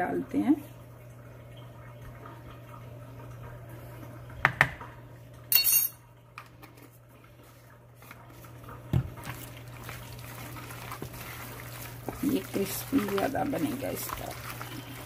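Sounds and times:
spoon clattering down: 5.5s - 6.0s.

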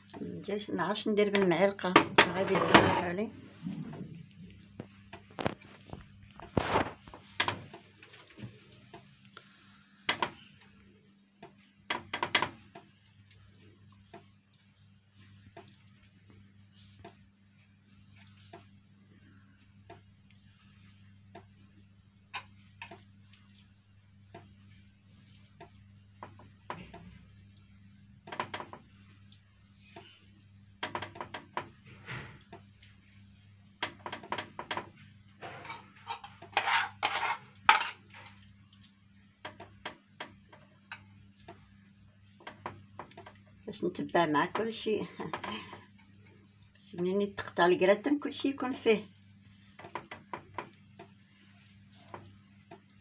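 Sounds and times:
metal spoon scraping metal dish: 35.4s - 38.0s.

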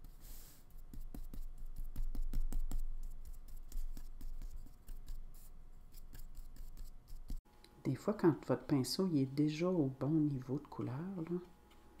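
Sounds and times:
paintbrush scratching on paper: 0.0s - 7.4s.

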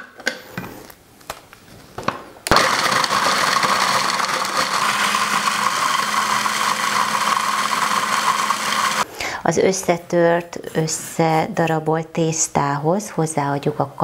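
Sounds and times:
food processor chopping gingerbread: 2.5s - 9.0s.

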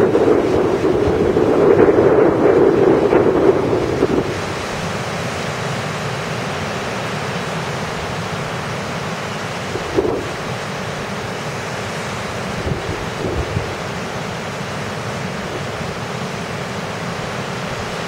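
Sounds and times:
wind buffeting microphone: 0.0s - 5.2s, 9.6s - 10.6s, 12.4s - 14.2s
waves breaking: 0.0s - 18.0s.

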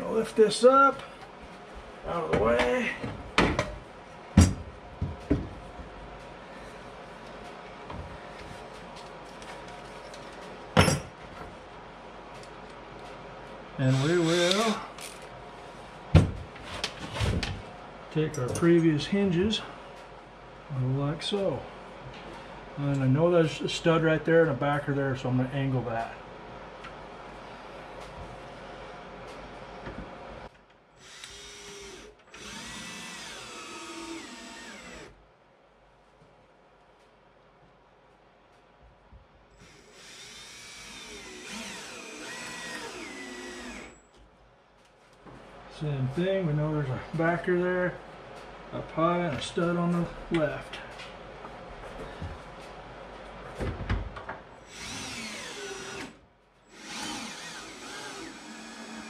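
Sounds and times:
cordless drill driving screw: 13.9s - 14.8s, 31.0s - 35.1s, 39.6s - 44.0s, 54.6s - 59.0s.

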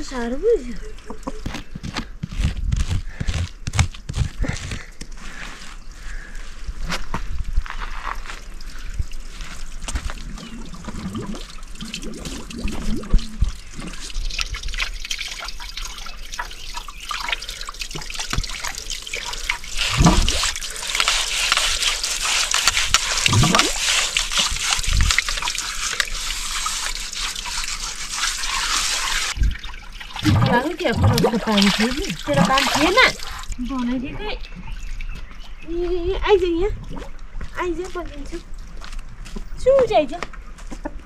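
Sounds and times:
hands knocking and scraping: 1.3s - 4.9s
water trickling over concrete: 7.6s - 40.2s.

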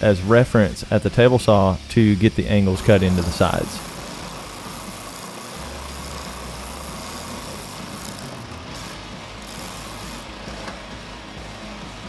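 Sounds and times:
abrasive hiss of wood sanding: 1.1s - 10.4s
belt sander motor hum: 2.0s - 10.7s.

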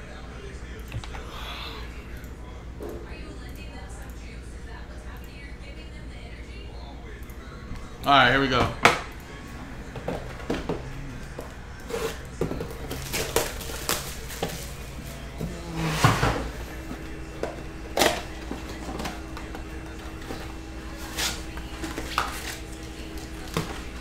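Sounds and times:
cardboard rustling: 11.9s - 17.1s.

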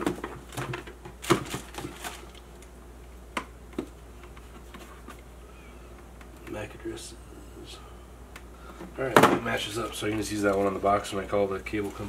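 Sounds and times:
cardboard and paper rustling: 0.0s - 2.4s, 9.8s - 12.0s.

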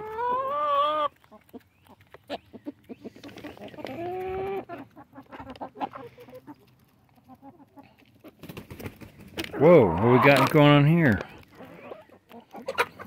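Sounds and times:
chicken beak clicks: 0.1s - 9.5s.

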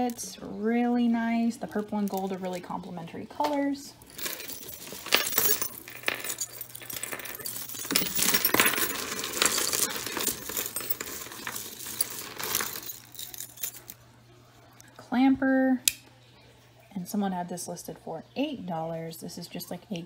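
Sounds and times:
metal jewelry clinking: 3.5s - 14.0s.

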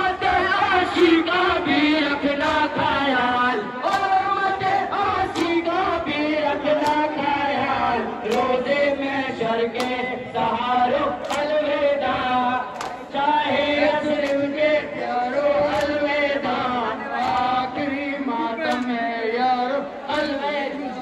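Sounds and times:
men chanting in unison: 0.0s - 21.0s
hands slapping chests: 2.4s - 2.8s, 3.8s - 6.1s, 6.7s - 7.3s, 8.2s - 8.7s, 9.8s - 10.1s, 11.2s - 13.2s, 14.1s - 14.6s, 15.6s - 16.6s, 17.2s - 17.7s, 18.6s - 19.0s.

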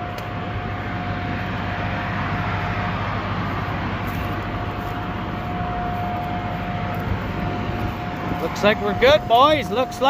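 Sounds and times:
thin steady whine: 0.0s - 10.0s
tractor engine hum: 0.0s - 10.0s.

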